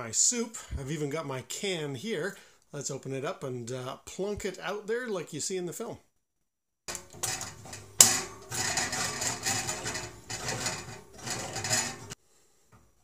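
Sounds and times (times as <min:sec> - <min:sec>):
can opener grating: 0:06.9 - 0:12.2.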